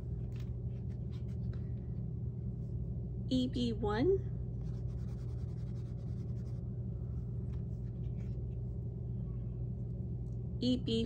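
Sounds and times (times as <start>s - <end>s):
steady low hum: 0.0s - 11.0s
pastel stick scratching on paper: 4.6s - 6.6s.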